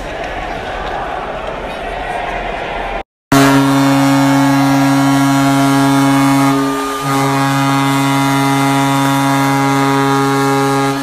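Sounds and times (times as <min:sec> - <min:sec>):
arena goal horn blast: 0:03.3 - 0:11.0.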